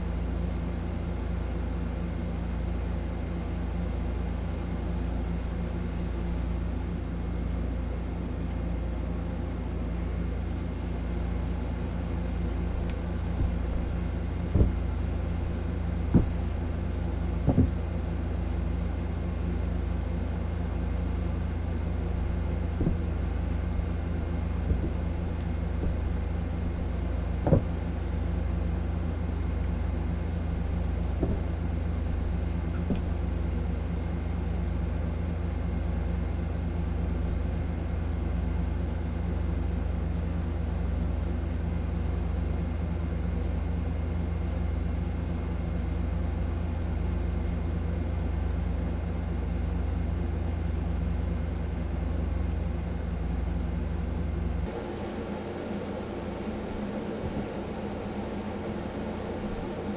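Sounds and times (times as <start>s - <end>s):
faint hum: 0.0s - 59.9s
low rumble: 12.3s - 18.6s
brief thumps: 12.7s - 17.9s, 22.7s - 23.3s, 24.2s - 26.3s, 27.4s - 27.9s, 31.1s - 33.2s.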